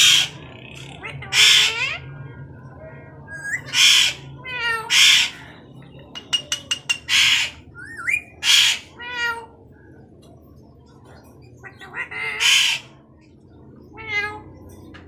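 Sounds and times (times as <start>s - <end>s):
parakeet squawks: 0.0s - 2.1s, 3.4s - 5.5s, 6.1s - 9.5s, 11.7s - 12.9s.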